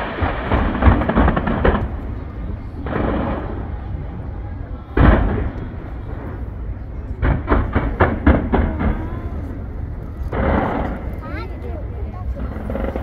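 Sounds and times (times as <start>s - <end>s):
fireworks bangs: 0.0s - 13.0s
loud noisy burst: 0.0s - 13.0s
steady low rumble: 0.0s - 13.0s.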